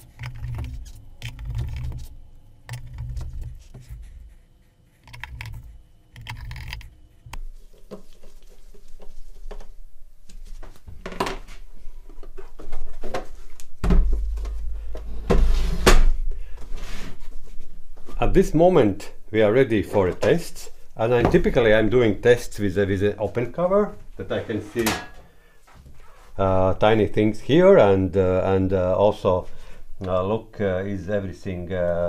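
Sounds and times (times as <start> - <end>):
clicks and scrapes on metal case: 0.0 - 2.1, 5.0 - 7.4.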